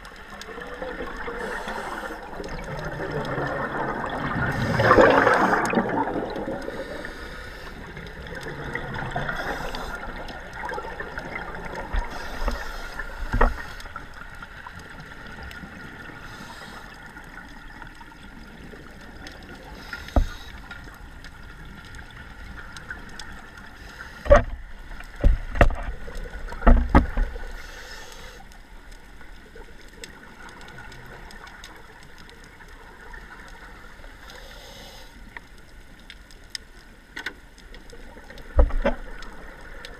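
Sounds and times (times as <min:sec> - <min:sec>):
regulator bubbles underwater: 0:00.0 - 0:27.9, 0:37.6 - 0:39.9.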